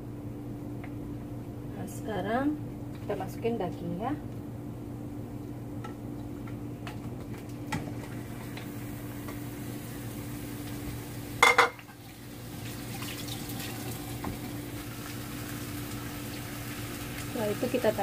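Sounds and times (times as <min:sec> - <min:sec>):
steady low hum: 0:00.0 - 0:18.0
dishes clattering: 0:11.4 - 0:11.9.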